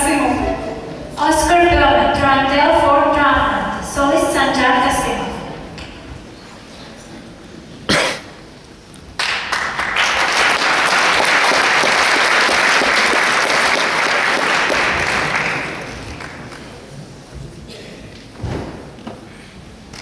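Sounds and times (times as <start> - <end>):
audience applauding: 9.2 - 16.9.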